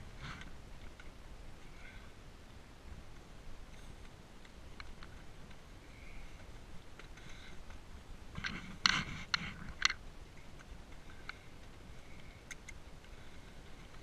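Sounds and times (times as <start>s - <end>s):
hooves on rocky trail: 0.0s - 14.0s.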